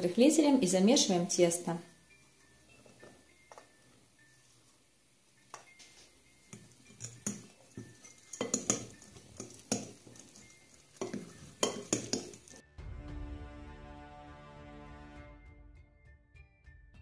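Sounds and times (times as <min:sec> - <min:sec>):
fork scraping a ceramic bowl: 0:06.6 - 0:12.6.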